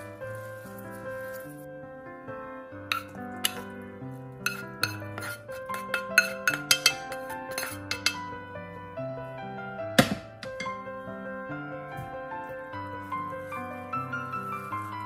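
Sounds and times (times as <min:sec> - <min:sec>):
piano music: 0:00.0 - 0:15.0
metal utensil clinking on bowl: 0:02.9 - 0:03.7, 0:04.5 - 0:08.3
loud knock on bowl: 0:10.0 - 0:10.8.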